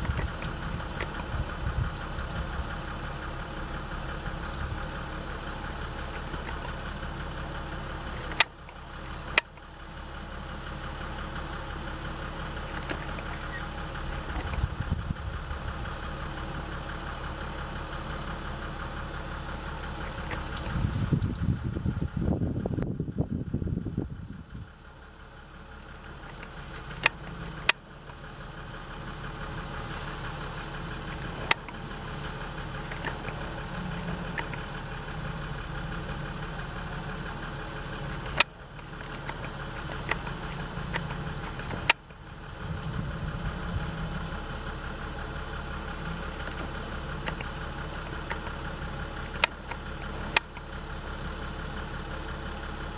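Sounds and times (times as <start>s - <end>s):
sharp clicks: 0.0s - 2.1s, 8.2s - 9.8s, 12.7s - 14.7s, 26.0s - 28.2s, 32.7s - 35.5s, 38.0s - 42.2s, 46.3s - 51.5s
vehicle engine idling: 0.0s - 52.9s.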